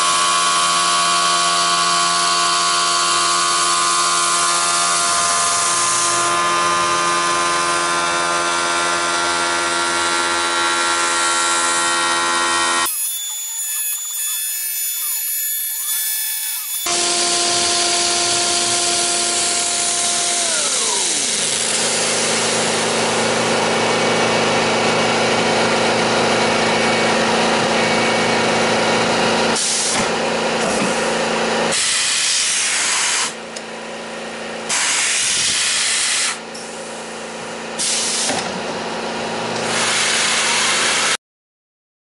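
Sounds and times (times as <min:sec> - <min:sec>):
milling machine humming: 0:00.0 - 0:31.8.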